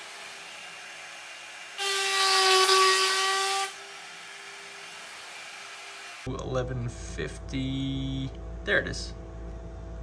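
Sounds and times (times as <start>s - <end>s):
router bit cutting wood: 0.0s - 6.3s.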